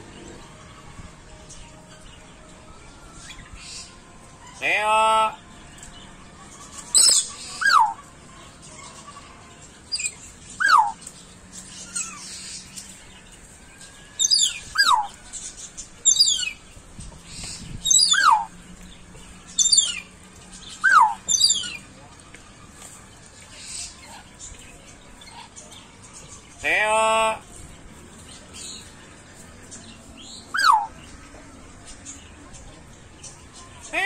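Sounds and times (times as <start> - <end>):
animal calling with falling chirps: 6.9 - 8.1, 9.9 - 11.0, 14.2 - 15.2, 17.8 - 18.5, 19.6 - 20.0, 20.7 - 21.8, 30.5 - 31.0.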